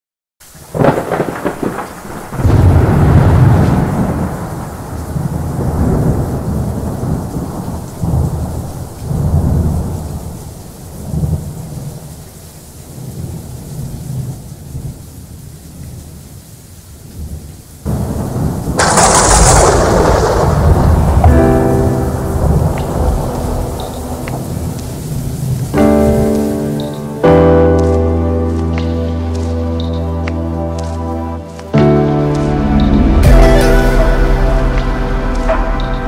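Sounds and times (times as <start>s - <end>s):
steady rain: 0.4s - 36.0s
thunder clap: 0.6s - 12.0s, 17.9s - 27.6s, 31.7s - 36.0s
thunder rumbling: 0.6s - 16.2s, 17.1s - 27.6s, 31.7s - 36.0s.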